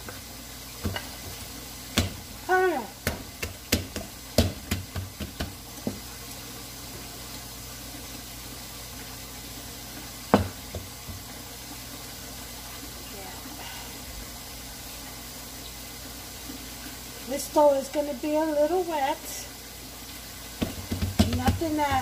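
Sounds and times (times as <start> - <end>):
kitchen tap running: 0.0 - 22.0
hands patting bread dough: 1.9 - 2.2, 3.0 - 6.0, 20.6 - 22.0.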